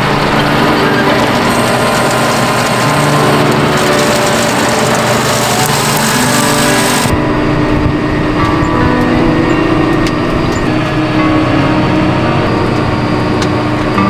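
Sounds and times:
tractor engine running: 0.0s - 14.0s
spreader spinners throwing pellets: 1.0s - 7.1s.

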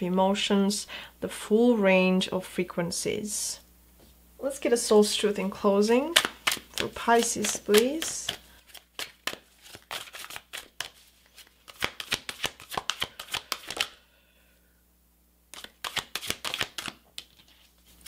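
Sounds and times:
cards being shuffled: 6.0s - 14.0s, 15.5s - 18.0s.

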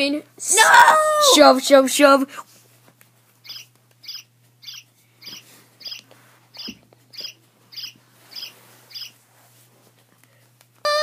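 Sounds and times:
toy bird high chirps: 3.4s - 9.2s.

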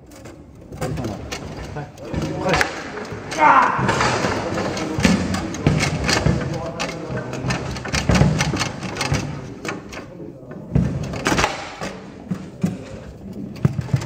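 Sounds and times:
table football ball clacking: 0.0s - 9.9s
rods rattling: 0.0s - 14.0s.

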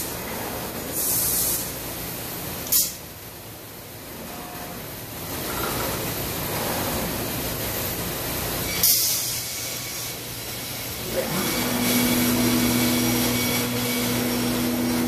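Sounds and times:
machine background hum: 0.0s - 15.0s
air hiss burst: 0.9s - 1.8s, 2.7s - 3.0s, 8.8s - 10.1s.

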